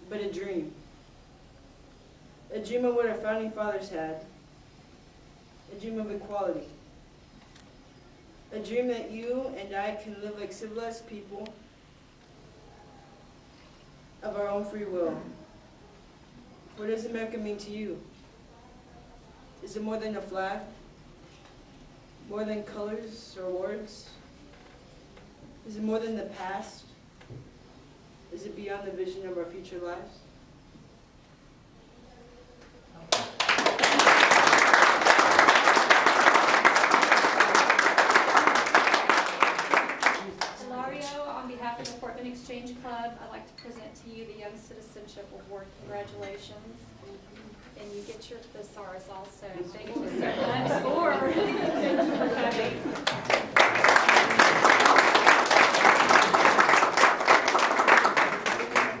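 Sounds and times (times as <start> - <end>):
audience applauding: 33.1 - 40.6, 52.9 - 59.0.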